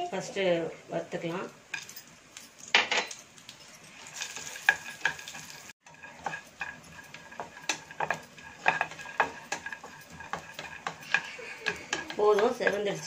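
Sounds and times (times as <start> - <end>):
light sizzle: 0.0 - 13.0
wooden spatula scraping a pan: 3.8 - 13.0.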